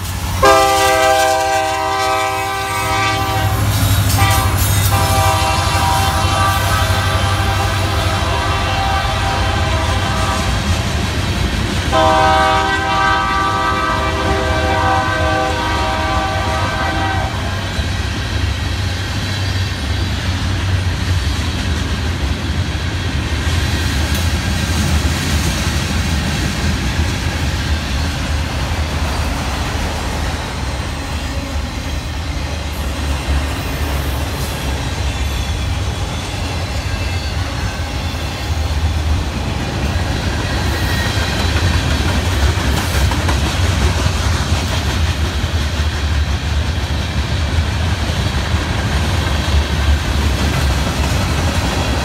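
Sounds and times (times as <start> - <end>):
freight train rumbling on rails: 0.0 - 52.0
locomotive air horn chord: 0.4 - 10.6, 11.9 - 17.7.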